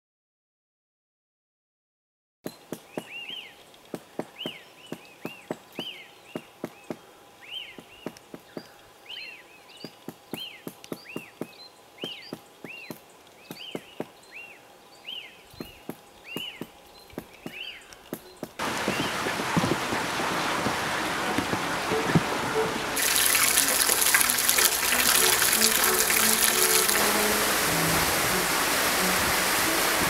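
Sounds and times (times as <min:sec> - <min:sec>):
woodpecker knocking on trunk: 0:02.6 - 0:07.1, 0:09.8 - 0:14.2, 0:15.6 - 0:22.3.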